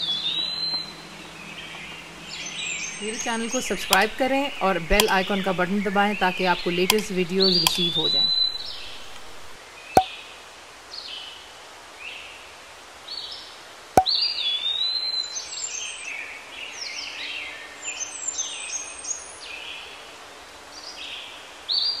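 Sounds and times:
birds chirping and whistling: 0:00.0 - 0:09.6
sharp click: 0:06.9 - 0:09.6.

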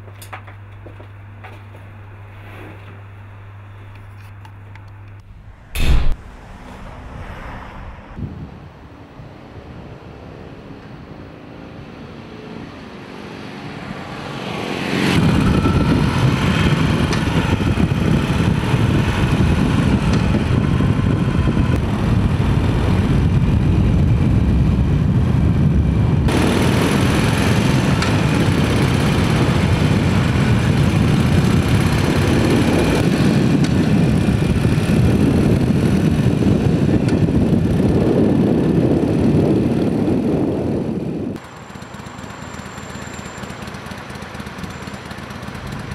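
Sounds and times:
motorcycle engine running: 0:14.4 - 0:45.9.

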